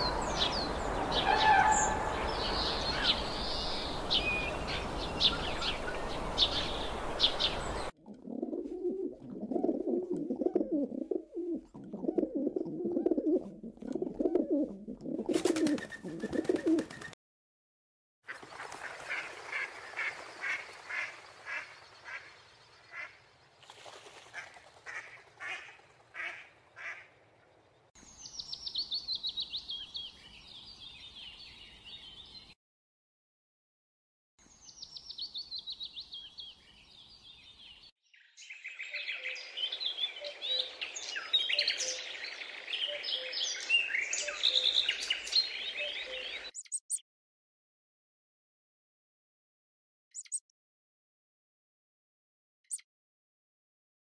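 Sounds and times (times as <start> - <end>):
birds chirping: 0.0 - 7.9, 19.4 - 23.6, 24.4 - 32.6, 34.5 - 46.9
evenly spaced bird calls: 0.0 - 8.0, 18.3 - 23.6, 24.4 - 32.6, 34.4 - 47.0, 50.1 - 50.5
low warbling bird calls: 0.0 - 17.2, 38.7 - 46.9.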